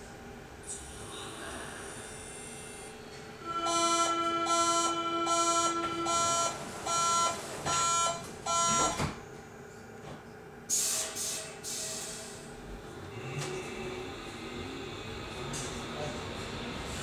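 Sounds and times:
door-closing warning beeps: 3.7s - 9.2s.

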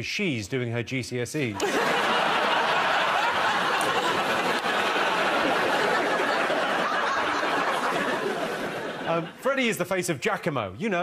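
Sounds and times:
audience laughing: 1.6s - 9.6s.

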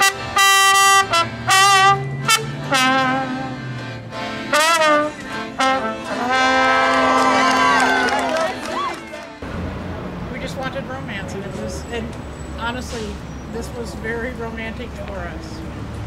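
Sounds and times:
brass instrument playing notes: 0.0s - 9.4s.

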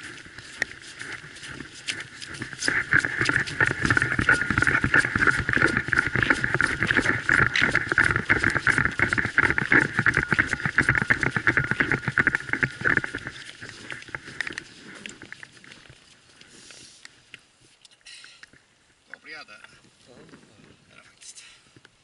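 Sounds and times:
footsteps crunching through snow: 0.0s - 17.3s.

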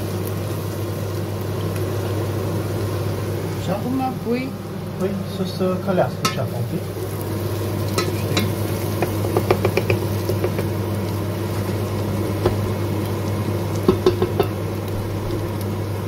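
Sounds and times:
onion sizzling in oil: 0.0s - 16.0s
spatula tapping against pot: 8.0s - 10.8s, 12.4s - 12.6s, 13.9s - 14.6s.

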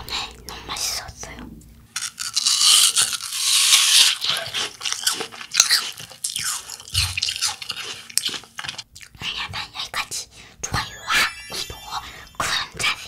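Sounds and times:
apple crunching: 1.9s - 9.1s
chewing crunches: 2.0s - 9.2s.

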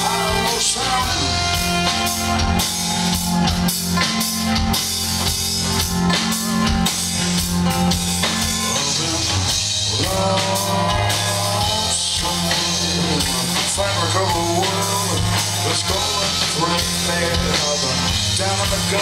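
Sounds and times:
drum kit beat: 0.0s - 19.0s
electric bass: 0.0s - 19.0s.

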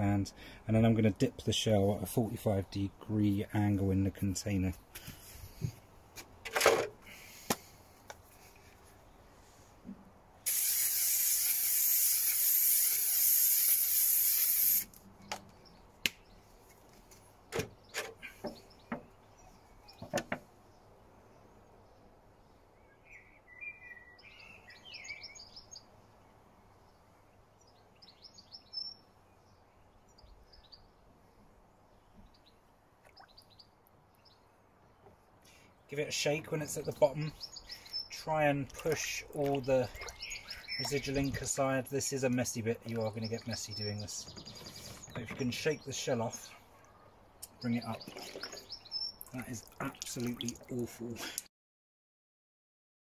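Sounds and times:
aerosol can spraying: 10.4s - 15.0s.

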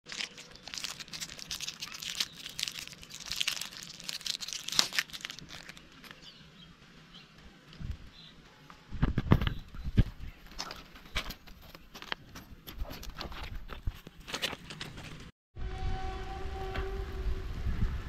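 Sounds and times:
soap wrapper crinkling and tearing: 0.1s - 6.2s.

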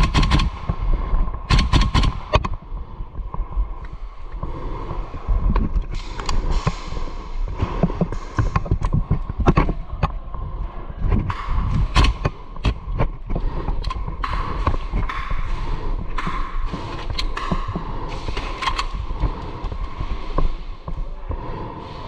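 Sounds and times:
gear clicks and thuds: 0.0s - 22.0s
footsteps: 2.3s - 22.0s
breathing through gas mask: 11.6s - 22.0s.

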